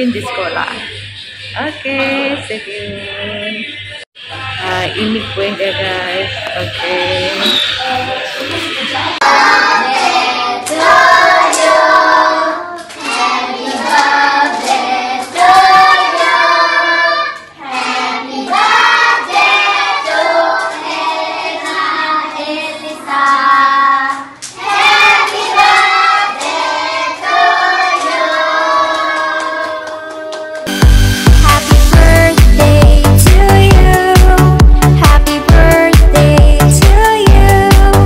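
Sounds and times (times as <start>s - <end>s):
children singing: 6.8s - 30.7s
hand claps: 12.7s - 15.5s, 28.8s - 30.8s.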